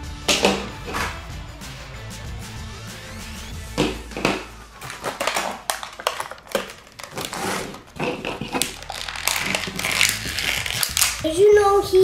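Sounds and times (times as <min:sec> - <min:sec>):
plastic packaging crinkling: 0:04.8 - 0:11.3.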